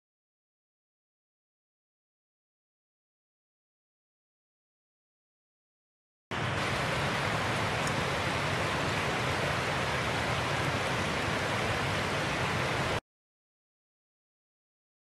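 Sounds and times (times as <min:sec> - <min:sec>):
creek water rushing over rocks: 0:06.3 - 0:13.0.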